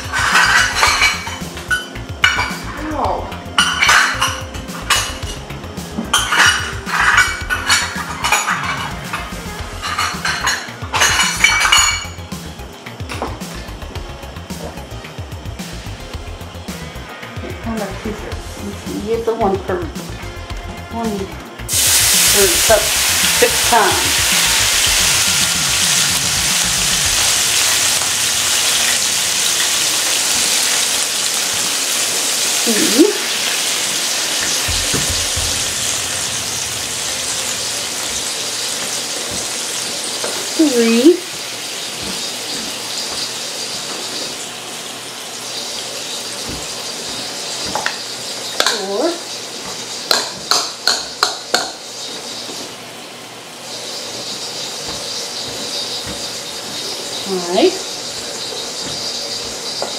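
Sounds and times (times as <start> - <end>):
frying pan sizzling: 0.0 - 59.9
water running from a tap: 21.0 - 59.9.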